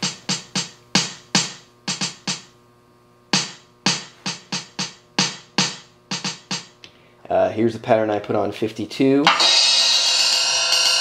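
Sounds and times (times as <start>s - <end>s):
drum machine hits: 0.0s - 2.6s, 3.3s - 6.8s, 9.2s - 11.0s.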